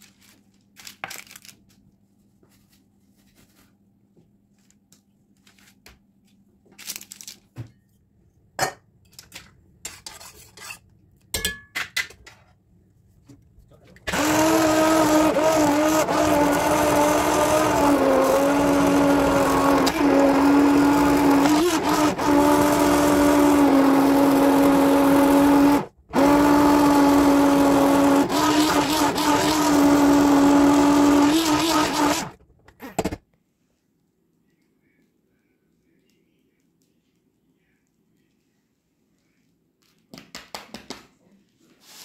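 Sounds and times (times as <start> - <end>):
immersion blender motor whine: 14.1 - 32.4.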